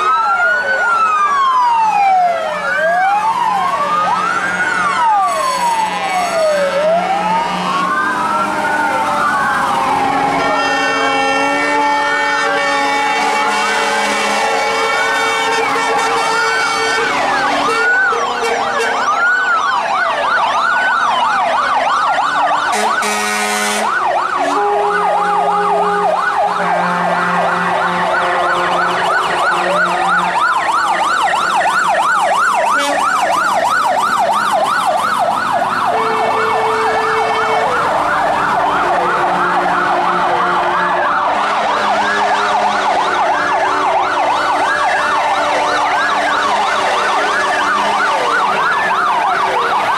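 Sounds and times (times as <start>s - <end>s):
fire truck sirens wailing: 0.0s - 49.9s
long horn notes: 22.7s - 26.0s.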